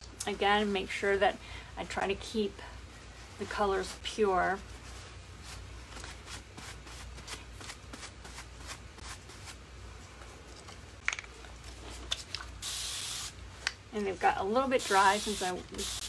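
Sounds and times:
paper towel rustling: 2.9 - 10.6
spray bottle hiss: 12.6 - 13.4, 14.8 - 16.0.

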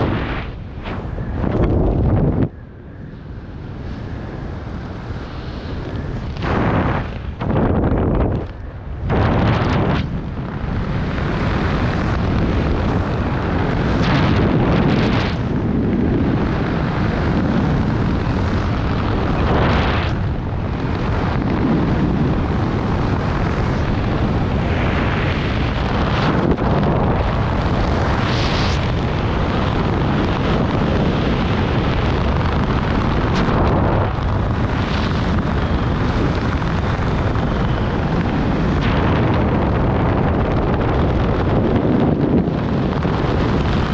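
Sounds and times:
wind buffeting microphone: 0.0 - 43.9.

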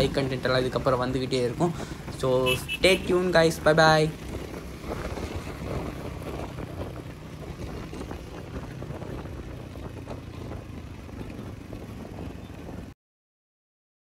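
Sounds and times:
motorcycle engine running: 0.0 - 12.9
road noise: 0.0 - 13.0
wind noise on microphone: 1.2 - 12.9.

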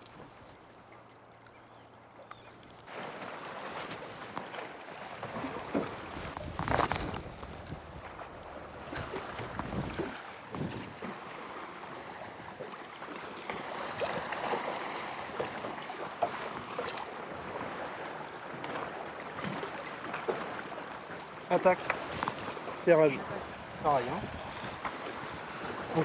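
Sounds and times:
water slapping against boat hull: 2.8 - 26.0
wind on the microphone: 5.9 - 11.1, 23.3 - 25.6.

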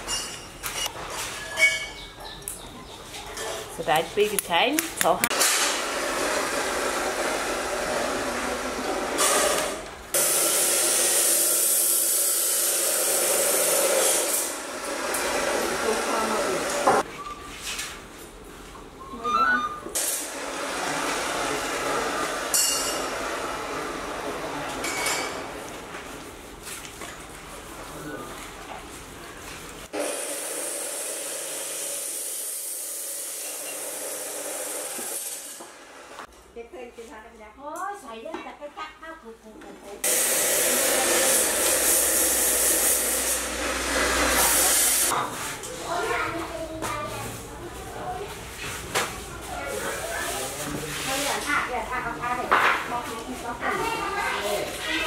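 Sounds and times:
loud hiss of cooking stove: 5.4 - 17.0, 20.0 - 24.4, 29.9 - 36.3, 40.0 - 45.7.

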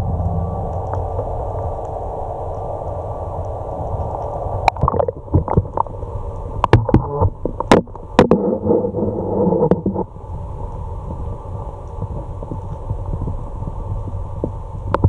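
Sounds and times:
muffled underwater rushing: 0.0 - 15.0
water splashing over camera: 3.9 - 10.2
bubbly gurgling: 4.1 - 6.0.

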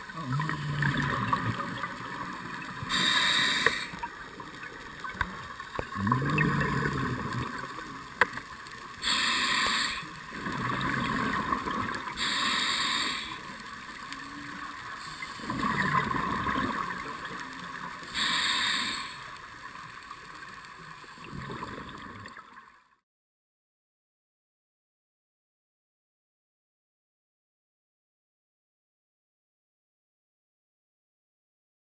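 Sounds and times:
gurgling exhaled bubbles: 0.0 - 19.2, 21.2 - 22.5
hissing regulator inhale: 2.8 - 4.1, 9.0 - 10.2, 12.1 - 13.6, 18.1 - 19.4.

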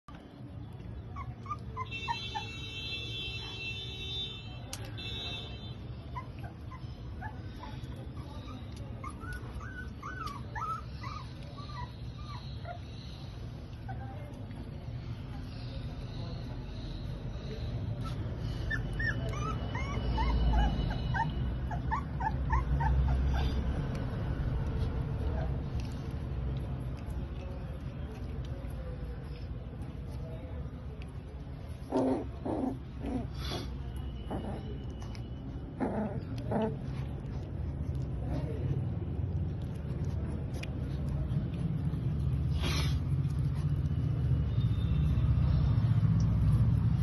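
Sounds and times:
puppies whimpering and yipping: 0.9 - 2.6, 6.0 - 14.6, 17.9 - 24.0
low steady rumble: 17.8 - 47.0.

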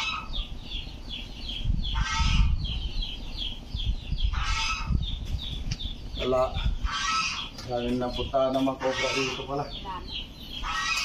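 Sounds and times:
geese honking: 0.0 - 0.5, 1.9 - 2.7, 4.3 - 5.0, 6.5 - 7.6, 8.6 - 9.9, 10.5 - 11.0.

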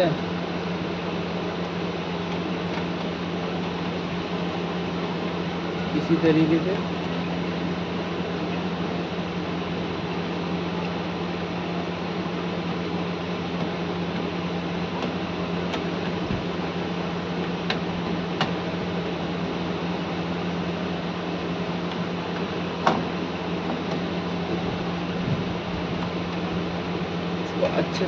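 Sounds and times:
background hum and hiss: 0.0 - 28.0.

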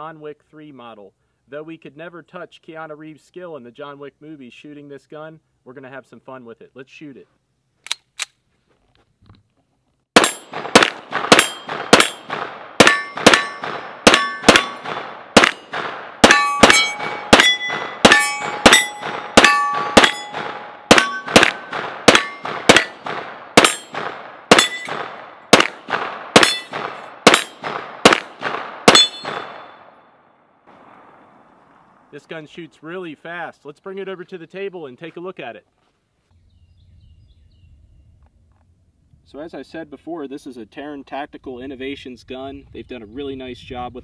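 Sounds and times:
pistol shots: 10.2 - 30.0
steel targets clanging: 11.3 - 23.0, 23.6 - 25.7, 26.4 - 27.6, 28.9 - 29.8.

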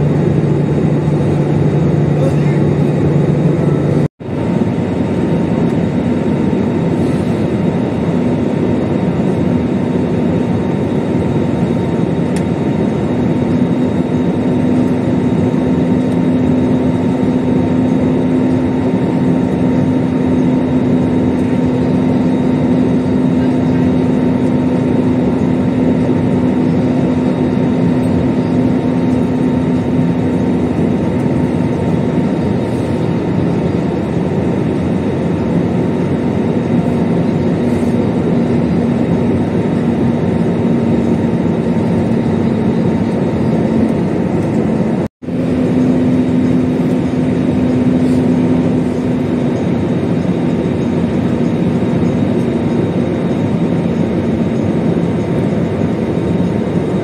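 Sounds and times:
jet engines and airflow rush: 0.0 - 57.0
low hum: 0.0 - 57.0.

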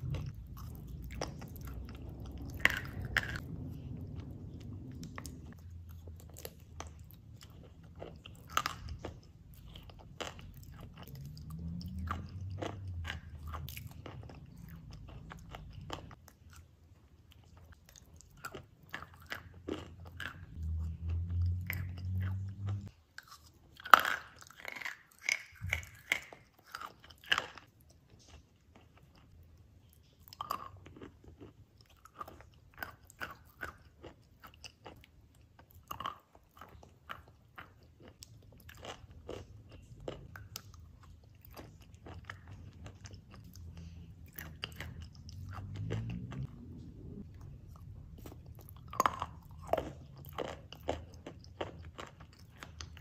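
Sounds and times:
low rumble: 0.0 - 16.2, 20.3 - 22.9, 39.6 - 50.3.

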